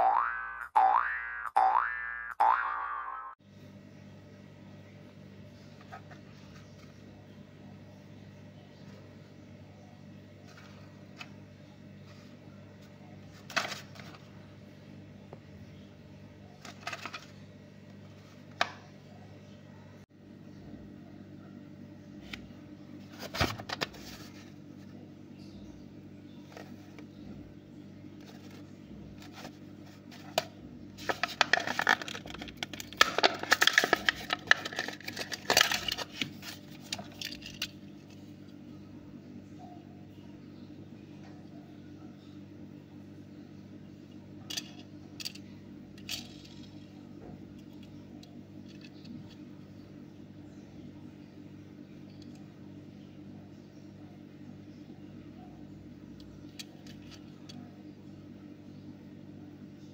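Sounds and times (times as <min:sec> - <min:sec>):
plastic packaging crackling: 0:28.2 - 0:37.8.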